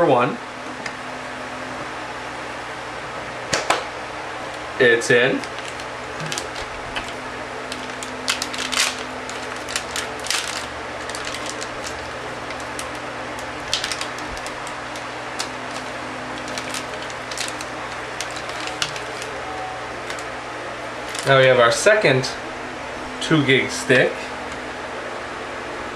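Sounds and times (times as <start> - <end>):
faint hum: 0.0 - 25.9
plastic wrapping crinkling: 4.5 - 21.5.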